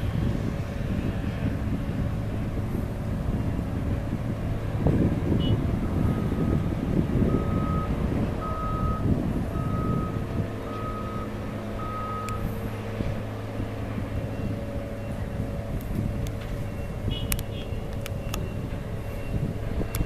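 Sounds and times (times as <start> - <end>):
engine humming: 0.0 - 20.0
reversing alarm beeping: 7.3 - 12.5, 13.5 - 15.3, 16.6 - 20.0.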